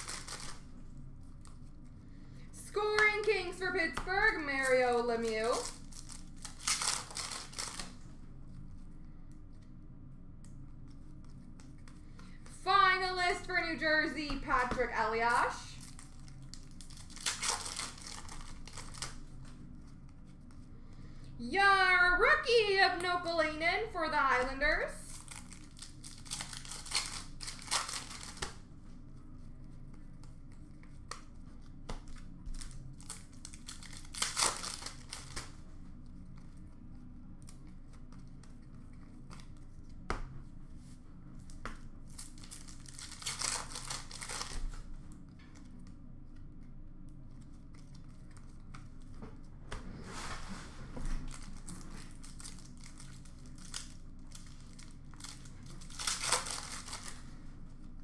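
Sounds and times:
wrappers tearing and crinkling: 0.0 - 1.7, 4.2 - 8.0, 15.3 - 19.5, 25.0 - 28.6, 32.1 - 35.5, 42.1 - 44.9, 51.2 - 57.4.

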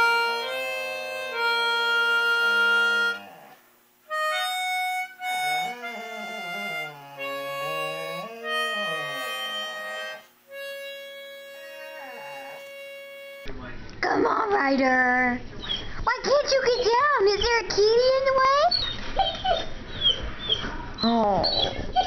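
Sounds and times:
harmonica playing chords: 0.0 - 3.4, 4.1 - 13.5
dog howling: 2.8 - 3.6, 5.2 - 10.2, 11.5 - 13.3.

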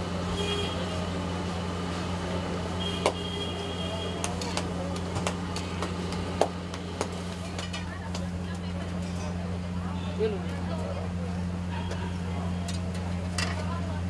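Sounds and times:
burners humming: 0.0 - 14.0.

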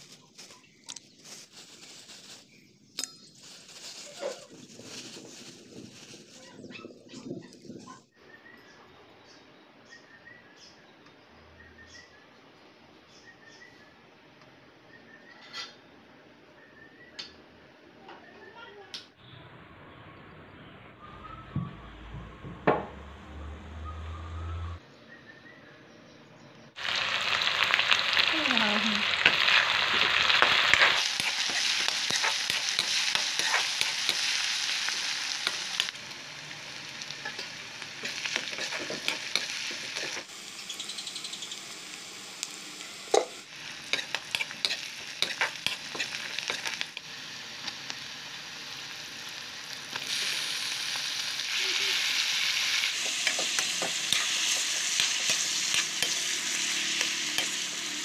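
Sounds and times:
food sizzling in hot oil: 26.8 - 58.0
spatula scraping and clacking on pan: 30.3 - 36.0, 37.2 - 40.3, 43.1 - 47.0, 52.9 - 58.0.

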